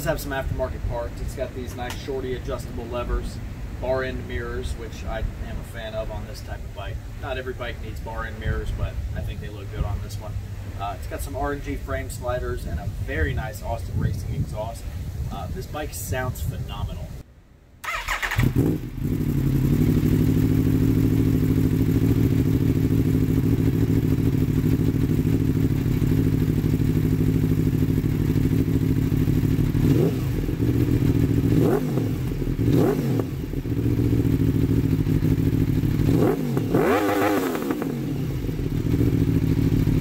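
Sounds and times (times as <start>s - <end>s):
motorcycle engine idling and revving: 17.9s - 40.0s.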